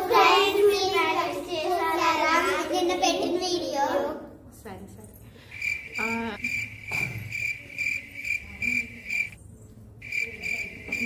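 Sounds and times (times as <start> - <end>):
cricket chirping: 5.5 - 9.4, 10.0 - 11.0.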